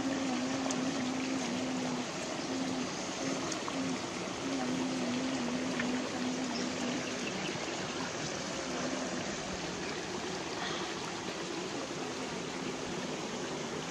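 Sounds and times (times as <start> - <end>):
stream running over rocks: 0.0 - 13.9.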